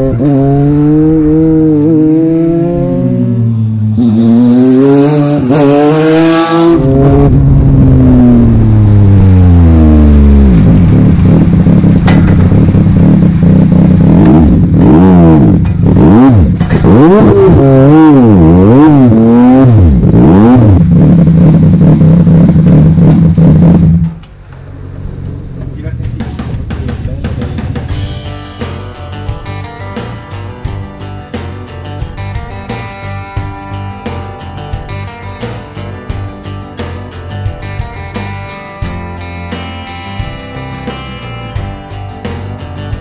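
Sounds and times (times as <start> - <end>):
engine revving through gear changes: 0.0 - 26.7
engine idling with revs blipped: 2.4 - 43.0.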